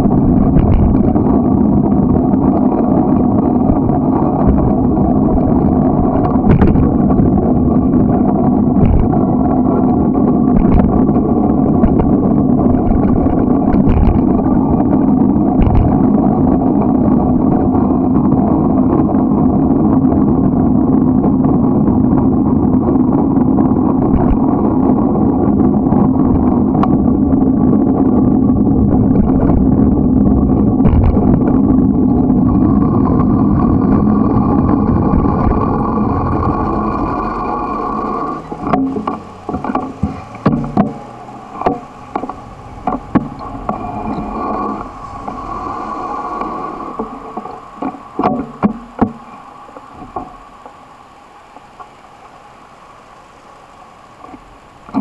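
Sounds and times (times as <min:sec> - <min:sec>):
wind buffeting microphone: 0:00.0 - 0:52.0
bicycle tyres rolling on asphalt: 0:00.0 - 0:55.0
short clicks from bumps: 0:38.0 - 0:43.8.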